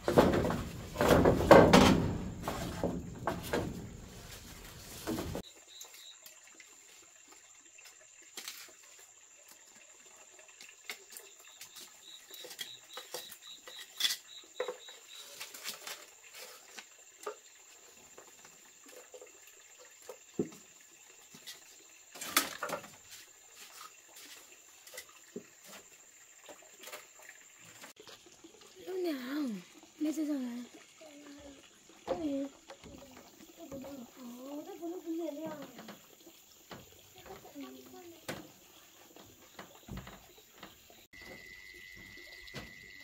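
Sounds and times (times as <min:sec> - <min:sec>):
faint high-pitched tone: 0:41.2 - 0:43.0.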